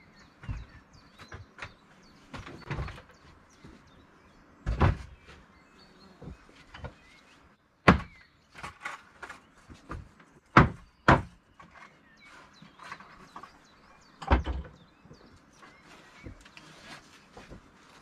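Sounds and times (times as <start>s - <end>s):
boards tapping and scraping: 0.4s - 3.8s, 7.8s - 18.0s
wooden boards knocking: 7.9s - 11.4s.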